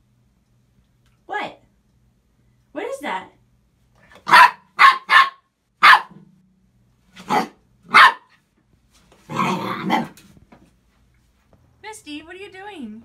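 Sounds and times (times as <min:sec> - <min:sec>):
puppy yapping: 0:04.2 - 0:06.2, 0:07.2 - 0:08.4
puppy growling: 0:09.3 - 0:10.2.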